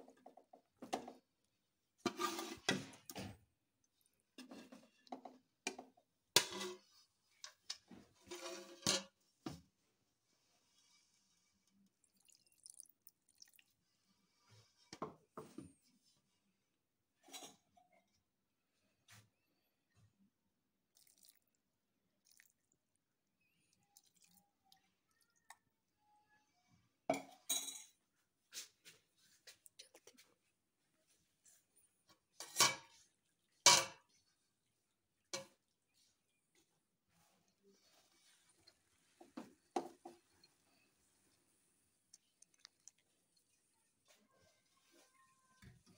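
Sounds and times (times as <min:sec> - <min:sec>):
metal utensils clanking on a pot: 0:06.4 - 0:09.2, 0:32.4 - 0:34.2.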